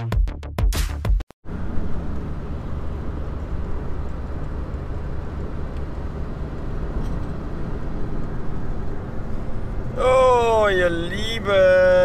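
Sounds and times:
car interior engine and road rumble: 1.5 - 12.0.

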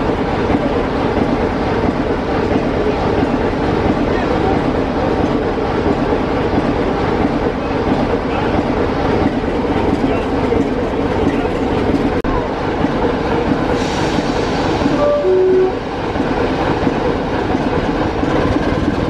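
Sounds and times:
diesel locomotive engine running: 0.0 - 19.0.

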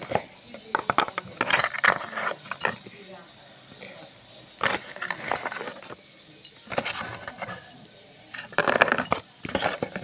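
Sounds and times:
jewelry rattling in a box: 6.5 - 10.0.

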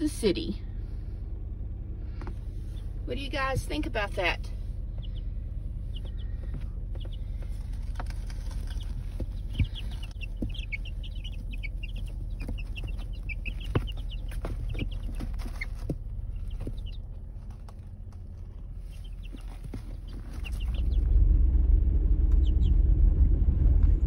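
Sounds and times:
low rumble: 0.0 - 24.0
chicks peeping: 2.2 - 3.0, 3.6 - 17.8, 18.7 - 21.1, 22.3 - 22.8.

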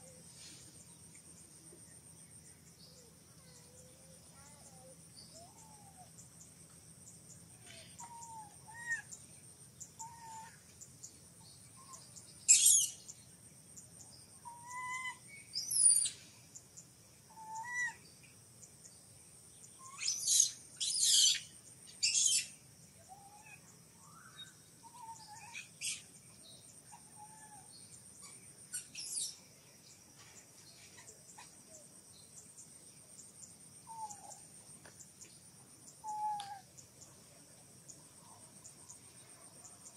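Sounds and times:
high insect drone: 0.0 - 39.9
shrill high monkey calls: 7.8 - 9.2, 10.0 - 10.7, 11.8 - 13.0, 14.4 - 16.2, 17.3 - 18.0, 19.8 - 26.2, 26.8 - 29.4, 33.8 - 34.4, 36.0 - 36.7
baby monkey whimpering calls: 17.4 - 18.0.

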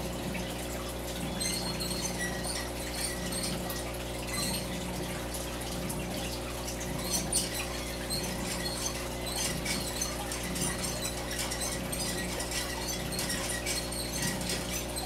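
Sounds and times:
rodents scratching and rustling: 6.0 - 15.0.

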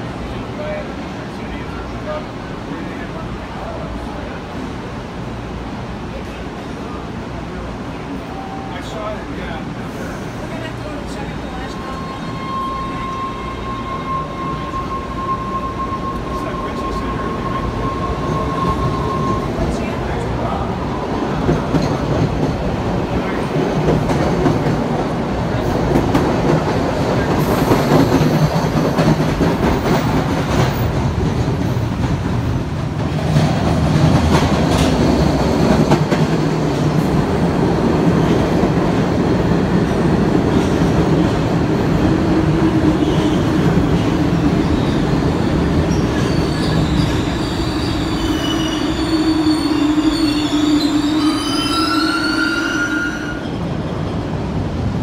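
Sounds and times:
subway train running: 0.0 - 55.0
train wheels squealing: 11.6 - 20.0, 43.0 - 54.2
train wheel clatter: 23.4 - 39.2.

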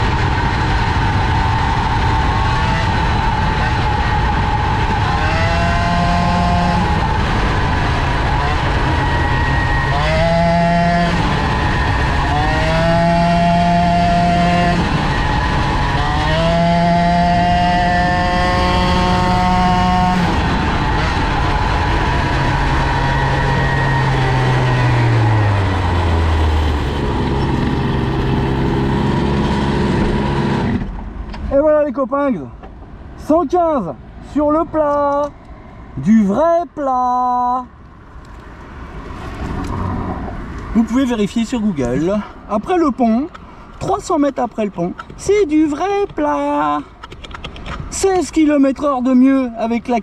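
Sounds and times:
moped engine at full throttle: 0.0 - 31.0
rushing noise: 0.0 - 31.4, 37.6 - 46.9.

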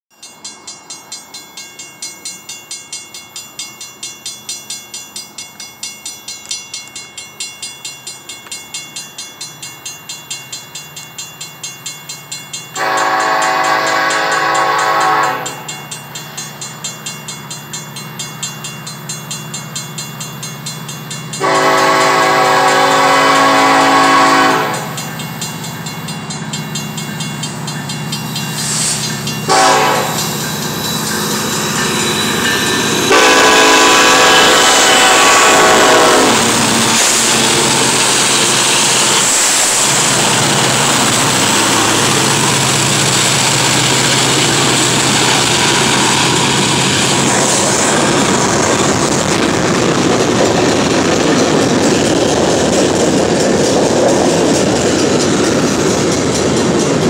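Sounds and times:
crossing bell ringing: 0.1 - 57.0
train horn blasts: 12.8 - 15.7, 21.4 - 25.0, 29.5 - 30.3, 33.0 - 38.0
locomotive engine rumble: 21.2 - 57.0.

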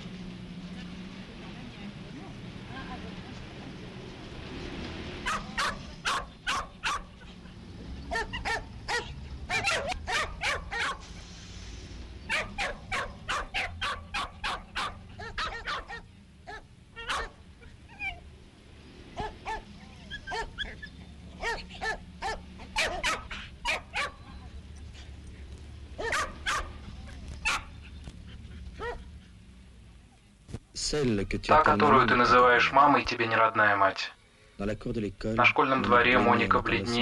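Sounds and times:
dog yelps and whines: 5.2 - 7.4, 8.1 - 11.0, 12.3 - 18.3, 19.2 - 24.5, 26.0 - 29.4
dogs barking: 5.2 - 11.1, 12.3 - 18.2, 19.1 - 24.4, 25.9 - 29.4.

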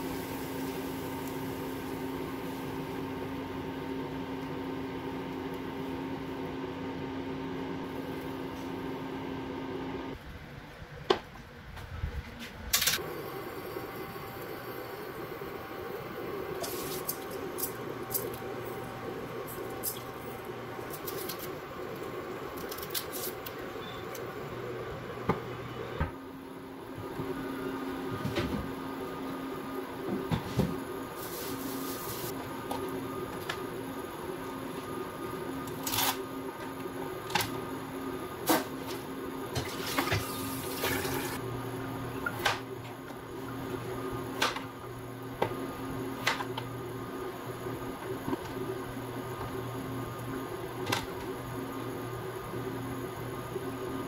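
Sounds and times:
steady low hum: 0.0 - 39.6.

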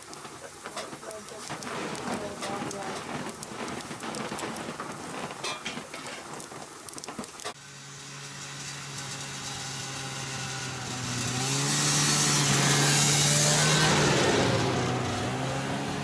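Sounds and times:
wood fire crackling: 0.0 - 16.0
snowmobile engine approaching: 7.5 - 16.0.

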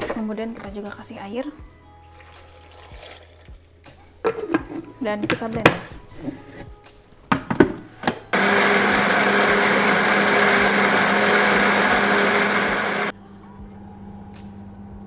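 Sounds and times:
electric blender motor running: 8.3 - 13.1.

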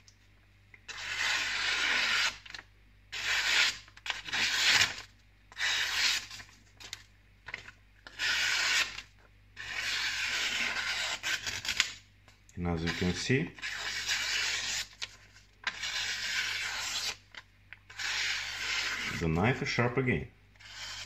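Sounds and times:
knife slicing paper: 0.9 - 7.0, 8.0 - 12.0, 12.8 - 17.3, 17.9 - 19.2, 20.6 - 21.0.

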